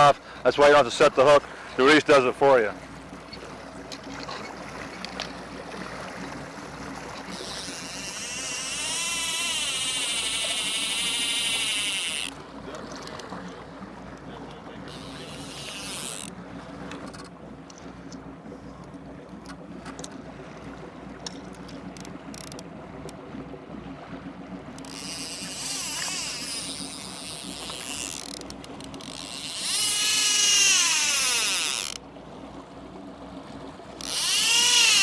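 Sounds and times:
boat engine hum: 0.0 - 35.0
fishing reel whirring and clicking: 3.3 - 5.4, 6.9 - 12.4, 14.8 - 18.2, 21.2 - 23.2, 24.7 - 32.0, 34.0 - 35.0.

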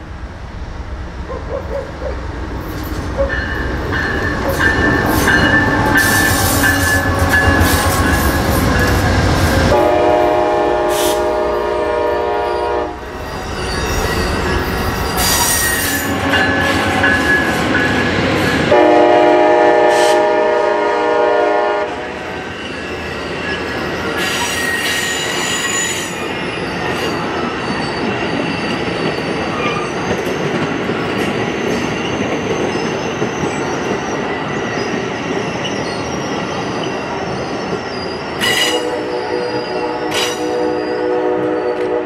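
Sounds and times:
train wheels rolling on rails: 0.0 - 42.0
train horn chord: 9.7 - 13.1, 18.7 - 22.2, 38.6 - 42.0
high wheel squeal: 13.2 - 17.4, 22.6 - 30.4, 31.5 - 41.8.

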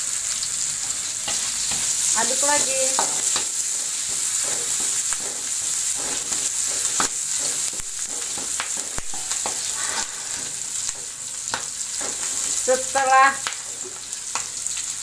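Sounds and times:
food sizzling in hot oil: 0.0 - 15.0
wooden spatula scraping a wok: 1.3 - 10.8.

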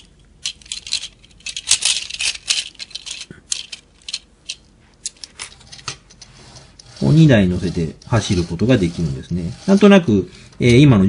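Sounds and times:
plastic toys clicking and rattling: 0.0 - 7.0.

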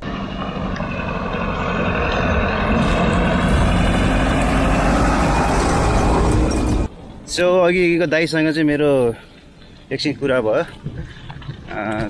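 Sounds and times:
bus diesel engine approaching: 0.0 - 7.7.

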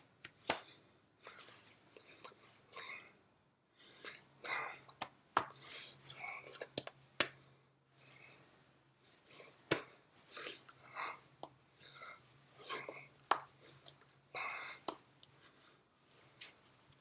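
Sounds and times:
breathy whispers: 5.6 - 6.7.

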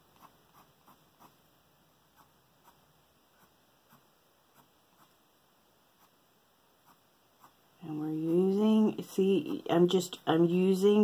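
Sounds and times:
colored pencil scratching on paper: 0.1 - 1.4, 2.1 - 5.2, 6.8 - 10.0.

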